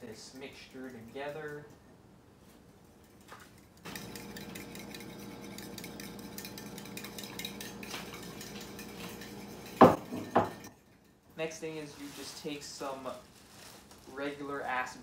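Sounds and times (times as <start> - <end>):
whisk scraping a bowl: 3.9 - 11.1.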